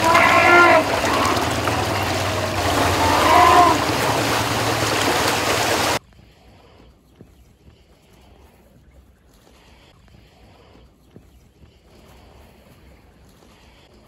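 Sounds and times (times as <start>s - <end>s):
voice calling out: 0.0s - 4.8s
river water rushing and splashing: 0.0s - 6.0s.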